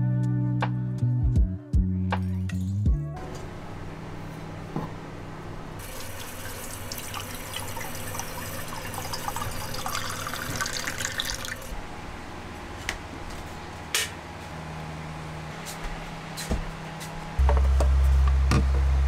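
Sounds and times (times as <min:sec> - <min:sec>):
tap water pouring into tumbler: 0:05.8 - 0:11.7.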